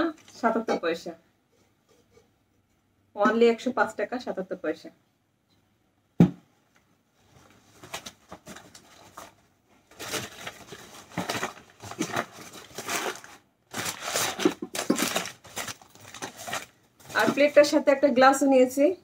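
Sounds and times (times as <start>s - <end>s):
crinkly wrapping rustled by hand: 7.2s - 17.9s.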